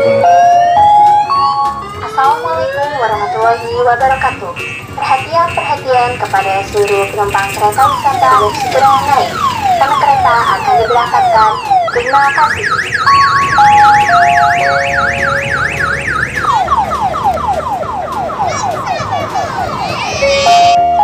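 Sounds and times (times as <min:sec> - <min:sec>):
electronic siren warbling: 0:07.8 - 0:18.5, 0:19.4 - 0:21.0.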